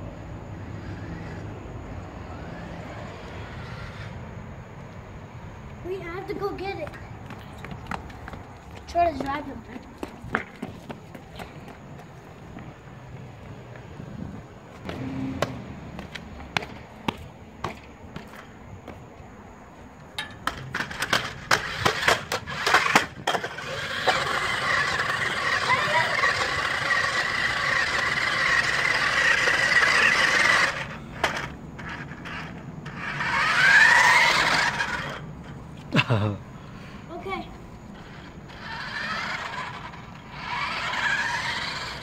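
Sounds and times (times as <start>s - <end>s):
wheels rumbling on concrete: 0.0s - 42.0s
small electric motors whining: 0.1s - 4.7s, 20.4s - 35.9s, 37.1s - 42.0s
toy car clattering down steps: 20.2s - 35.6s, 37.9s - 42.0s.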